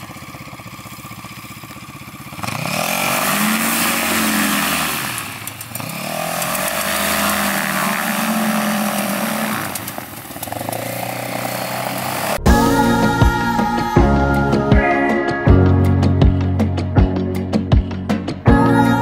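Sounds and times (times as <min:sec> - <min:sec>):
aircraft engine revving: 0:00.0 - 0:18.4.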